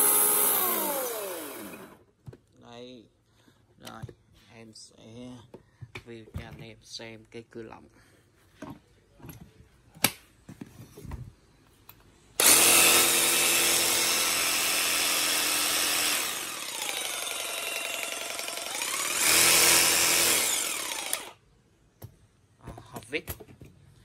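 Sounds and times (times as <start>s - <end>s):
jigsaw motor whirring: 0.0s - 2.0s, 12.4s - 21.4s.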